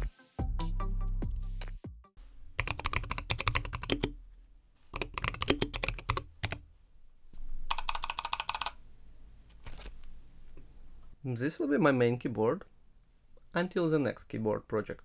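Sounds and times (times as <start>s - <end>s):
background music: 0.0s - 2.1s
mechanical keyboard typing: 2.6s - 4.1s, 4.9s - 6.6s, 7.7s - 8.8s.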